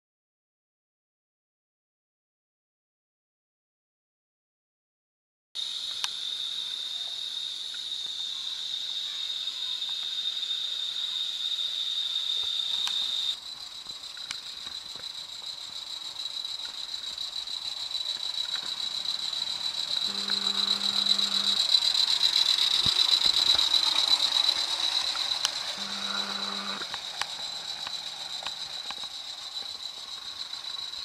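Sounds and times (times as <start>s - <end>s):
insect trill: 5.6s - 31.0s
model train wheel clicks: 20.1s - 29.1s.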